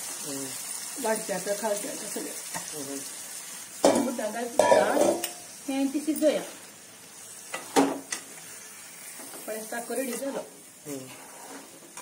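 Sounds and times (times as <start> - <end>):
low sizzle: 0.0 - 12.0.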